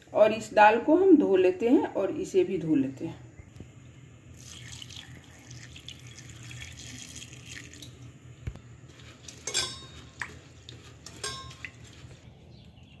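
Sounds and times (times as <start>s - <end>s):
tap water running into steel bowl: 4.4s - 8.0s
water splashing in bowl: 4.4s - 8.0s, 9.3s - 12.2s.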